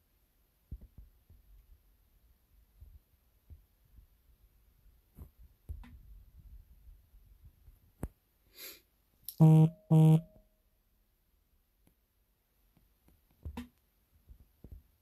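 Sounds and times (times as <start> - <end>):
short loud buzzes: 9.3 - 10.4.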